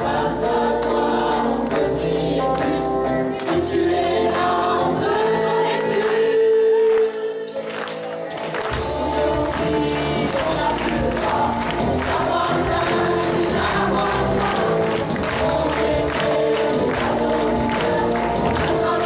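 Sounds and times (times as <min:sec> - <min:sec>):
choir singing into microphones: 0:00.0 - 0:19.0
live rock band playing: 0:07.7 - 0:18.8.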